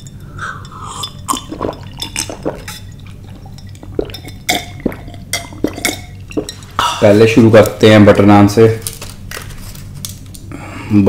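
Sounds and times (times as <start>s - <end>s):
man gulping: 0.2s - 7.2s
liquid glugging in bottle: 0.9s - 7.0s.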